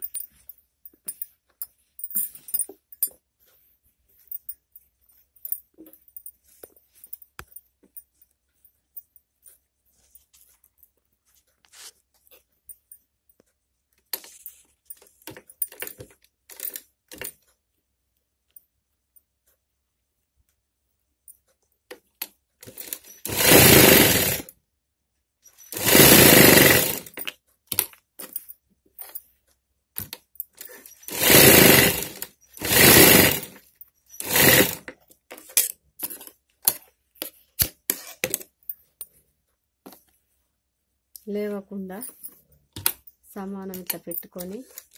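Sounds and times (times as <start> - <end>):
sewing machine stitching: 22.6 - 24.5, 25.7 - 27.2, 30.6 - 33.6, 34.2 - 34.9.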